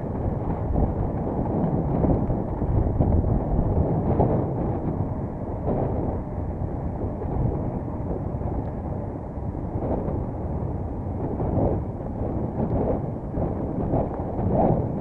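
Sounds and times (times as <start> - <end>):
wind noise on microphone: 0.0 - 15.0.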